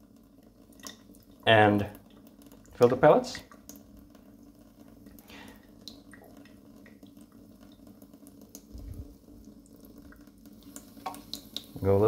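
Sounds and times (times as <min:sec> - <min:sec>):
water trickling and dripping: 0:00.0 - 0:12.0
steady low hum: 0:08.5 - 0:10.7.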